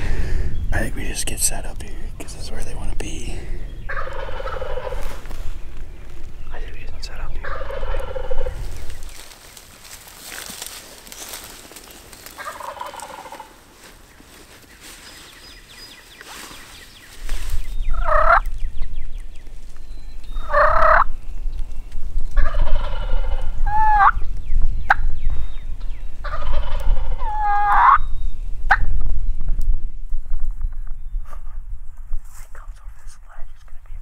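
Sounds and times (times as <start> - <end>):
low rumble: 0.0 - 11.8
turkeys gobbling: 3.9 - 5.3, 7.4 - 9.4, 12.2 - 13.6, 17.9 - 18.5, 20.3 - 21.1, 22.4 - 24.2, 26.2 - 28.0.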